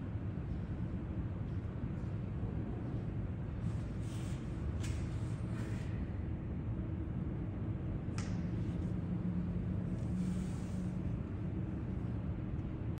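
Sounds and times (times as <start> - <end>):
sharp click: 8.1 - 8.5.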